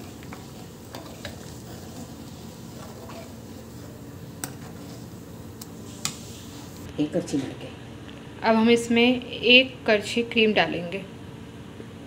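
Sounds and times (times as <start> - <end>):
ladle stirring bubbling lentils: 0.0 - 6.9.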